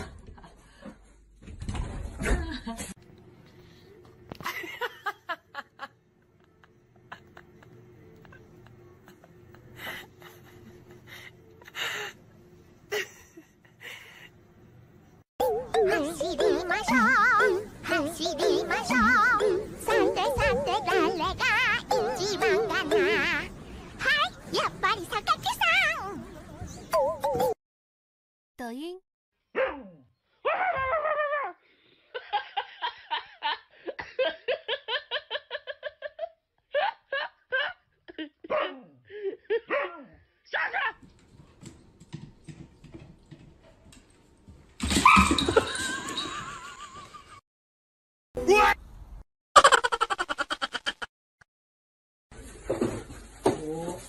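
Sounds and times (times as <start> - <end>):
person laughing: 4.4 - 12.2, 49.6 - 51.1.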